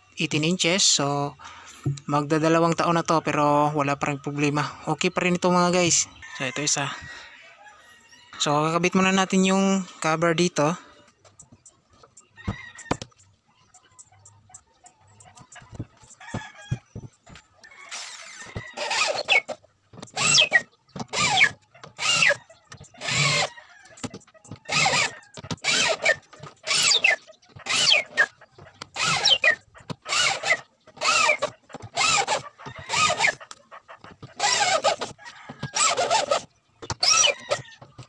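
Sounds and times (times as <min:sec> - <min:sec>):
electric drill driving screws: 0:17.9 - 0:23.5, 0:24.6 - 0:33.4, 0:34.4 - 0:37.7.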